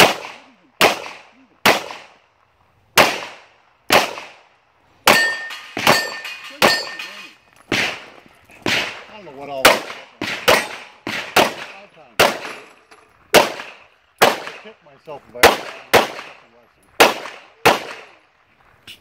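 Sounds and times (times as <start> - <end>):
handgun shots: 0.0 - 2.1, 3.0 - 4.4, 5.1 - 7.1, 7.7 - 12.7, 13.3 - 14.6, 15.4 - 16.4, 17.0 - 18.1
steel target ringing: 5.1 - 7.4.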